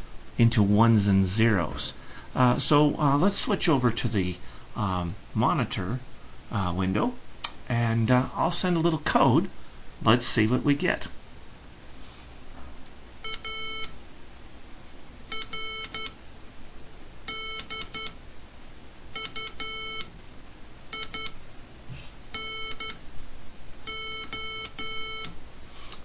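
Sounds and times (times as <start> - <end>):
morse code beeps: 13.2 - 13.9, 15.3 - 16.2, 17.3 - 18.2, 19.2 - 20.1, 20.9 - 21.4, 22.3 - 23.0, 23.9 - 25.4.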